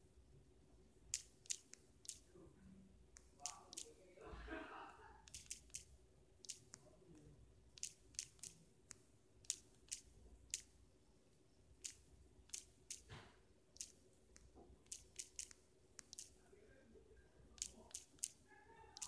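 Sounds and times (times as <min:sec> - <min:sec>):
finger tapping touchscreen: 0:01.1 - 0:02.3, 0:03.1 - 0:04.0, 0:05.3 - 0:06.8, 0:07.8 - 0:10.8, 0:11.8 - 0:13.2, 0:13.8 - 0:16.4, 0:17.6 - 0:19.0.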